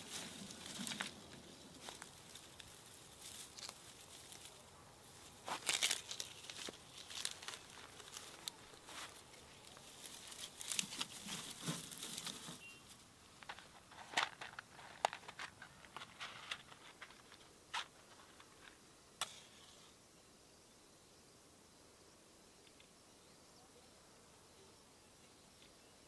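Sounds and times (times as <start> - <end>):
dry twigs rustling and snapping: 0.0 - 4.6, 5.2 - 18.8.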